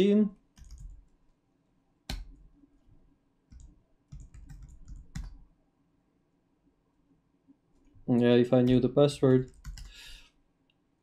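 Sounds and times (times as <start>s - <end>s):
computer keyboard keystrokes: 0.6s - 1.0s, 2.1s - 2.4s, 3.5s - 5.4s, 9.4s - 10.0s.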